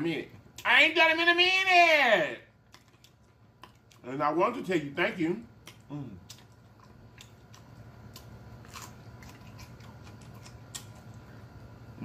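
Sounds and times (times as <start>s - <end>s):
steady low hum: 0.0s - 12.0s
person chewing and smacking lips: 2.6s - 4.1s, 5.6s - 11.4s.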